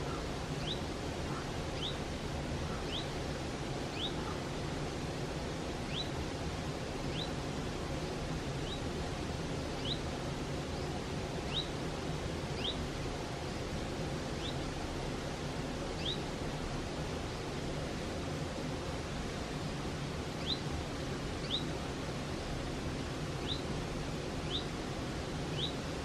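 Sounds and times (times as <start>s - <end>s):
stream rushing over rocks: 0.0s - 26.0s
bird rising chirp: 21.4s - 21.7s, 23.4s - 23.6s, 24.4s - 24.7s, 25.5s - 25.8s.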